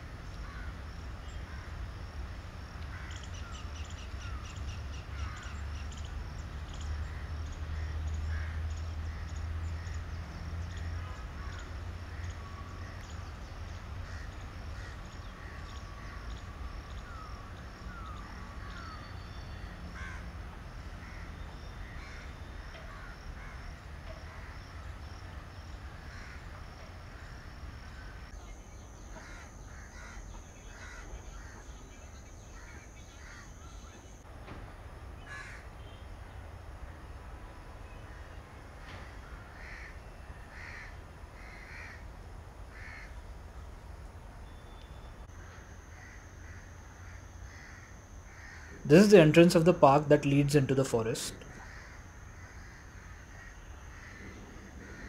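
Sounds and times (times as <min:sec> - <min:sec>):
high insect drone: 0:00.0 - 0:55.0
insects chirring: 0:00.0 - 0:55.0
crows cawing: 0:00.4 - 0:00.8, 0:02.9 - 0:03.5, 0:04.2 - 0:05.6, 0:07.0 - 0:10.0, 0:11.0 - 0:13.0, 0:14.0 - 0:19.2, 0:19.9 - 0:20.3, 0:21.0 - 0:25.1, 0:25.8 - 0:28.3, 0:29.1 - 0:31.7, 0:32.5 - 0:33.6, 0:35.3 - 0:36.0, 0:38.9 - 0:42.1, 0:42.7 - 0:43.2, 0:45.3 - 0:48.9, 0:51.4 - 0:55.0.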